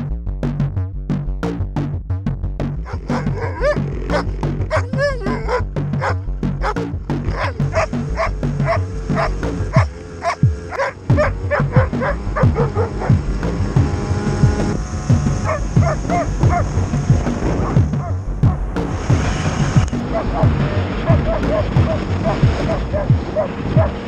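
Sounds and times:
electronic music with drum beat: 0:00.0 - 0:24.0
dog barking and yipping: 0:02.8 - 0:13.3, 0:15.4 - 0:16.8, 0:17.6 - 0:18.2, 0:20.0 - 0:24.0.

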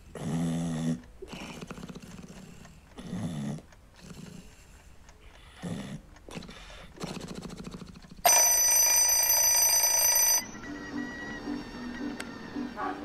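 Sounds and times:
twin-bell alarm clock ringing: 0:08.3 - 0:10.6.

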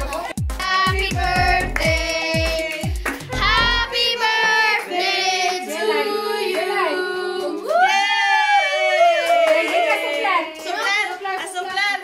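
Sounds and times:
drum beat: 0:00.0 - 0:04.2
light backing music: 0:00.0 - 0:05.7.

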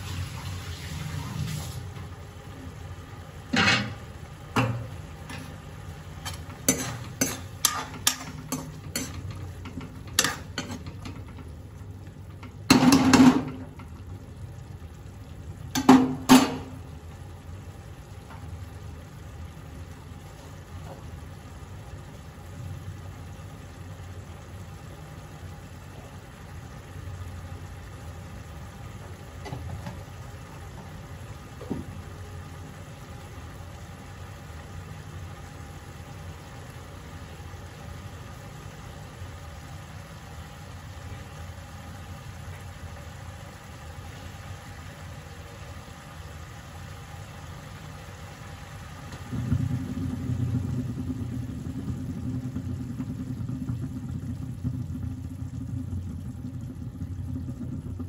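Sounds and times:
curry simmering in pan: 0:00.0 - 0:58.0
ladle scraping metal pan: 0:06.2 - 0:11.1
ladle clanking: 0:06.2 - 0:11.5.

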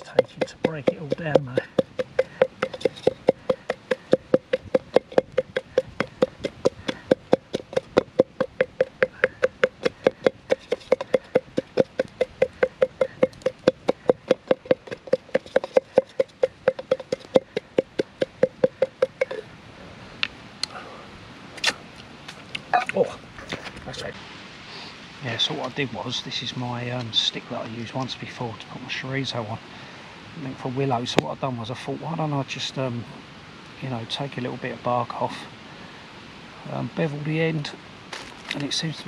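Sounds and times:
wooden stick pounding food in pot: 0:00.0 - 0:19.4.

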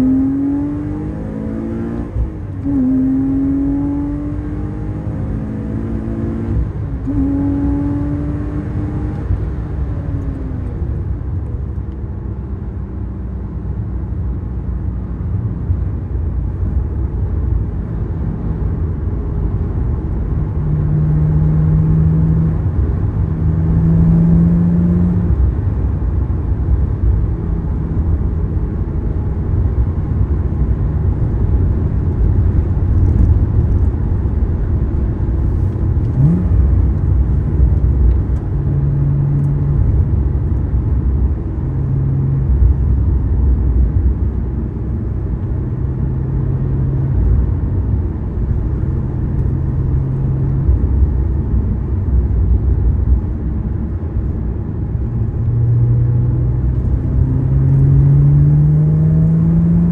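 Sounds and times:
car engine from inside cabin: 0:00.0 - 0:59.9.

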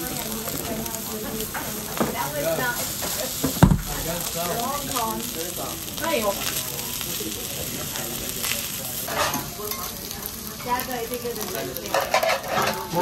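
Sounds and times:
rice sizzling on a griddle: 0:00.0 - 0:13.0.

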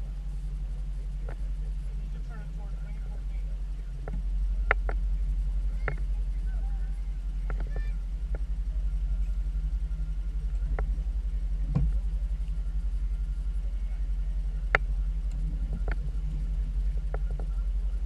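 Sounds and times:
outboard motor idling: 0:00.0 - 0:18.0.

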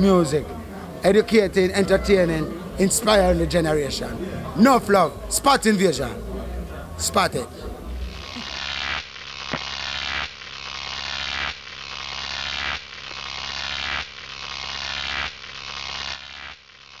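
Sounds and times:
steady low hum: 0:00.0 - 0:16.5
synthetic buzzing sound effect: 0:00.0 - 0:17.0.

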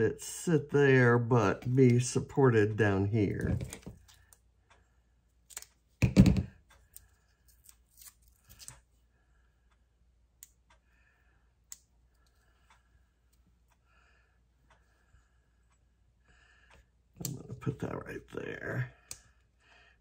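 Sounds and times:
thump on tabletop: 0:06.0 - 0:06.5.

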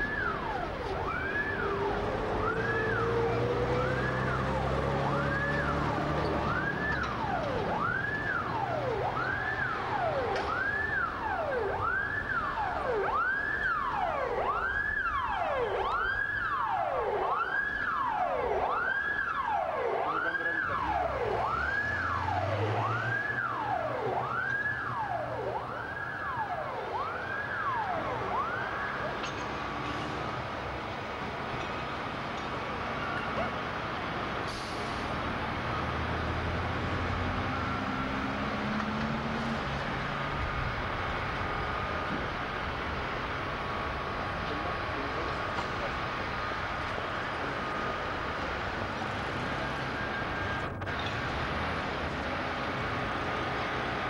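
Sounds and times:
siren wailing: 0:00.0 - 0:29.4, 0:37.1 - 0:38.5, 0:47.1 - 0:50.9.

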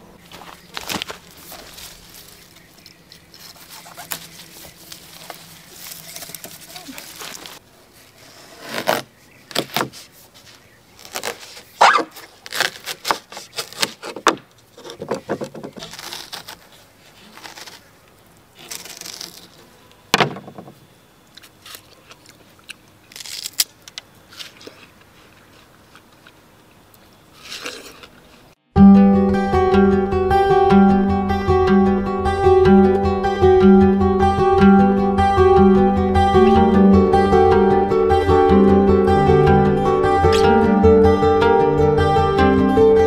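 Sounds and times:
knife cutting watermelon: 0:15.7 - 0:17.9.

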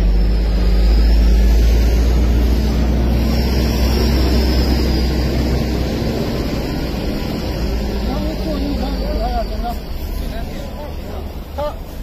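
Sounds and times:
car engine idling: 0:04.3 - 0:12.0.

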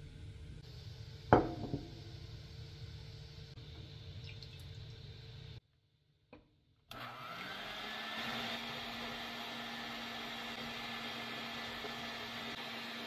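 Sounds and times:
electric hand mixer whirring: 0:06.9 - 0:13.0.

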